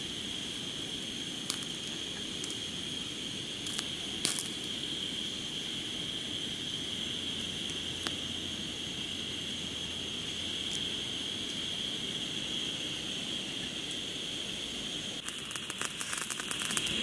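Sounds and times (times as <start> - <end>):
meat sizzling in a hot pan: 0.0 - 17.0
oil crackling and popping: 0.2 - 5.3, 6.9 - 8.4, 15.2 - 17.0.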